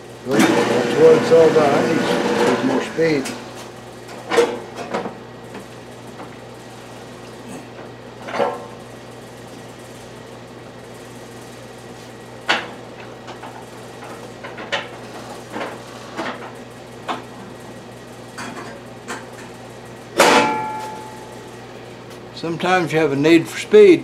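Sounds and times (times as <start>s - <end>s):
lathe low hum: 0.0s - 4.1s
loud ringing metallic clank: 20.2s - 21.4s.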